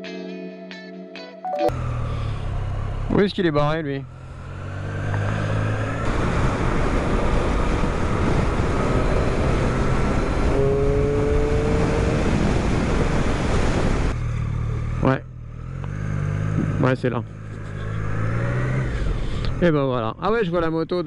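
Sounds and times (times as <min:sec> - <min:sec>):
motorcycle engine droning: 0:01.7 - 0:20.1
wind noise on microphone: 0:06.0 - 0:14.2
faint rising tone: 0:17.2 - 0:19.2.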